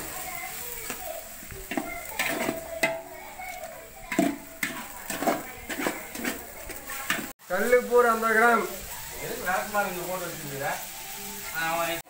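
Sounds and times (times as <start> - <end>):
spoon knocking and scraping metal pot: 1.6 - 7.4.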